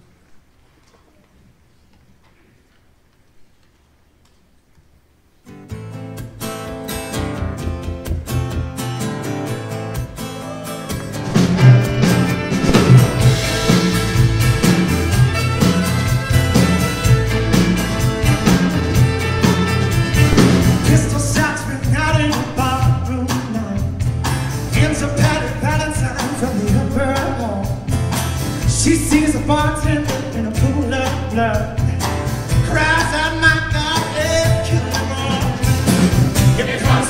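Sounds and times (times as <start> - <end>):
acoustic guitar strumming: 5.5 - 37.0
man singing: 20.8 - 24.0, 24.7 - 27.9, 28.6 - 37.0.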